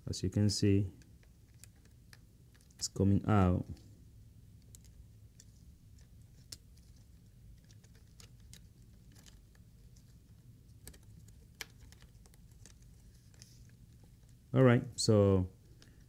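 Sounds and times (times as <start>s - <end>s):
small clicks and ticks: 0.9s - 2.9s, 4.6s - 14.4s.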